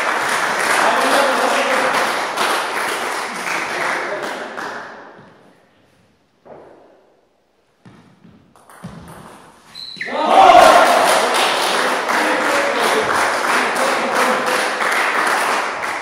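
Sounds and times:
spectators applauding: 0:00.0 - 0:04.8, 0:10.2 - 0:16.0.

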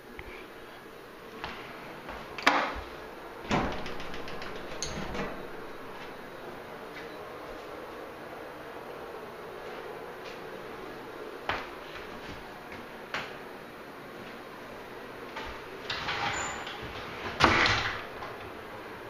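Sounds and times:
door clunk: 0:03.5 - 0:05.6.

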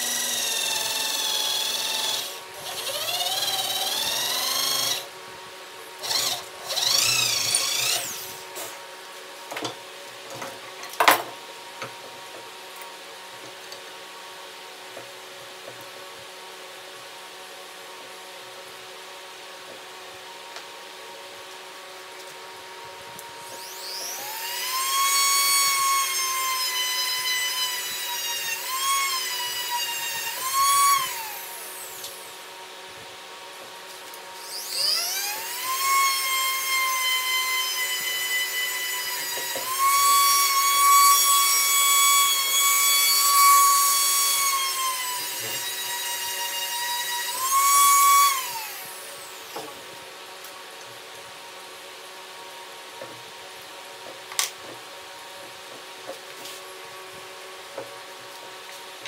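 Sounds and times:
rotary tool whining: 0:00.0 - 0:05.1, 0:06.0 - 0:08.8, 0:23.4 - 0:32.4, 0:34.4 - 0:49.7.

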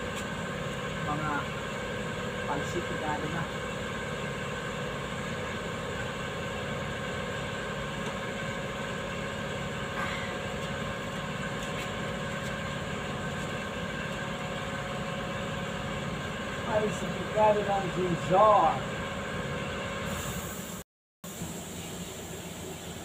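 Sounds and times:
workshop machinery hum: 0:00.0 - 0:23.0.

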